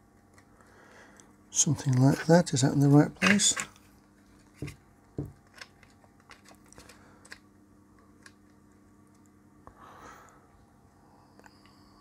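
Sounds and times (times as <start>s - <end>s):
plastic case clicks and knocks: 4.6s - 6.4s.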